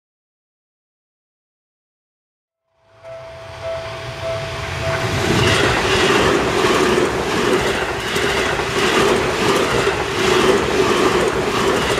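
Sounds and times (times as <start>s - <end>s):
electric train passing: 2.7s - 11.9s
wheels clattering over rail joints: 5.3s - 11.9s.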